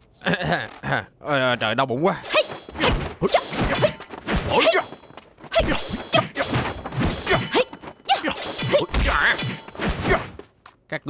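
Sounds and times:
punches and blows: 2.2 - 10.5.

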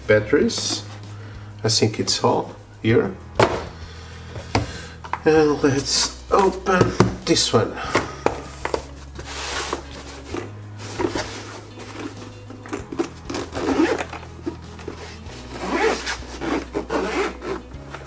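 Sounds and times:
soft background music: 0.0 - 18.0
fabric case scraping on desk mat: 8.5 - 18.0
zipper being unzipped: 9.2 - 18.0.

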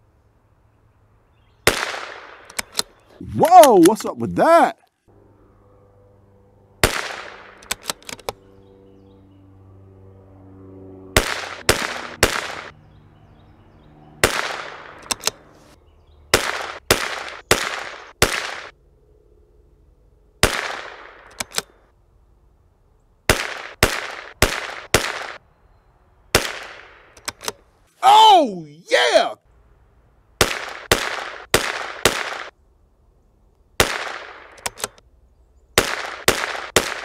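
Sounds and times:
sharp rifle shots: 1.6 - 2.9, 6.8 - 8.2, 11.2 - 12.7, 14.2 - 15.3, 16.3 - 18.7, 20.4 - 21.6, 23.3 - 25.4, 26.3 - 27.5, 30.4 - 32.6, 33.8 - 35.0, 35.8 - 37.0.

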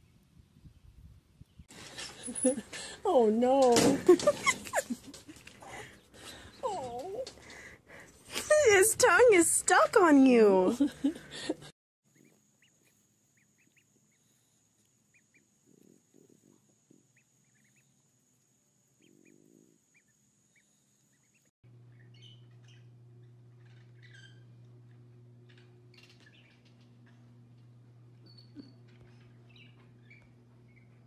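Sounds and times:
steady low hum: 10.8 - 31.0
ducklings peeping: 12.1 - 14.4, 15.1 - 15.5, 17.1 - 18.0, 19.0 - 27.3, 28.2 - 31.0.

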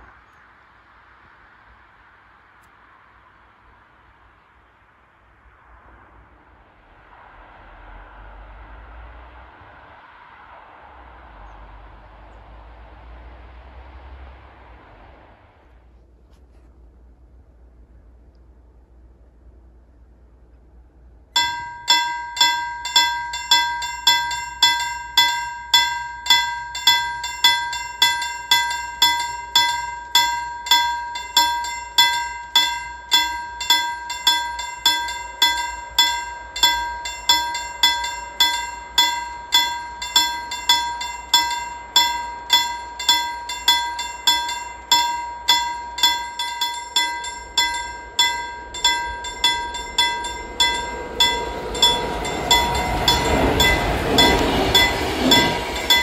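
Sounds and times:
level crossing warning bell: 21.4 - 56.0.

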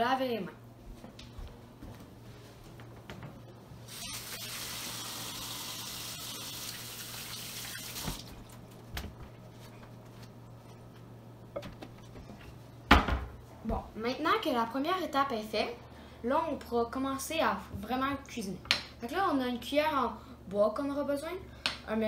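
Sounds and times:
kitchen faucet running: 3.9 - 8.3
water running into steel sink: 3.9 - 8.3
steady low hum: 8.2 - 22.0.

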